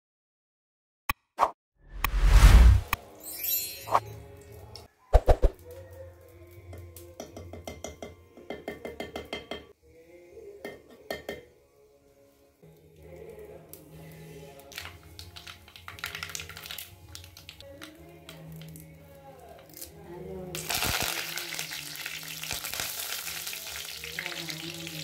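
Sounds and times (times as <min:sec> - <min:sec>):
soft background music: 0:03.0 - 0:25.0
metal spoon clinking on clay pot: 0:07.2 - 0:09.7, 0:10.6 - 0:11.5
seeds crackling in hot oil: 0:12.7 - 0:25.0.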